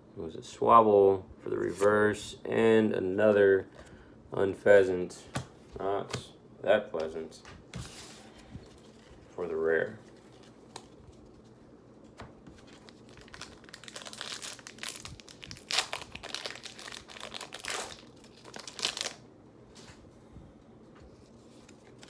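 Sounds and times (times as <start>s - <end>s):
card pack packaging crinkling and tearing: 12.2s - 19.2s.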